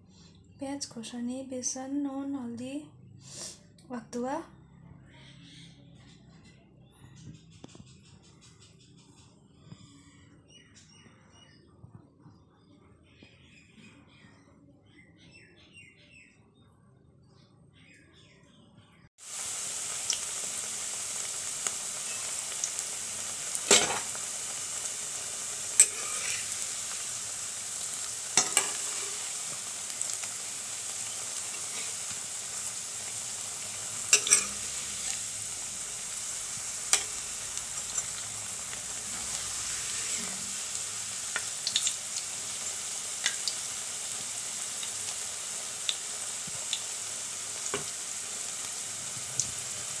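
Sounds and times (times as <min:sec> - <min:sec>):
food frying in hot oil: 0:19.2 - 0:50.0
metal spatula clinking on pan: 0:28.4 - 0:28.8, 0:34.1 - 0:34.6.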